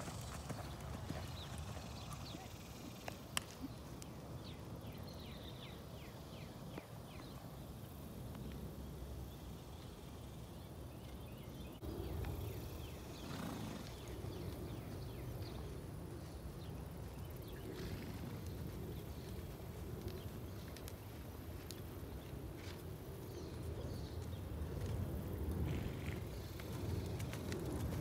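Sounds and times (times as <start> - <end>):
wind rumble on microphone: 13.9 - 28.0.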